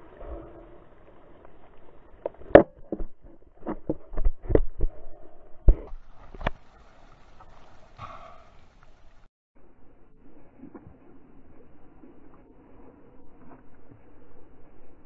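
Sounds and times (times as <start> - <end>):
wind: 0.0 - 15.0
water washing: 5.8 - 9.3.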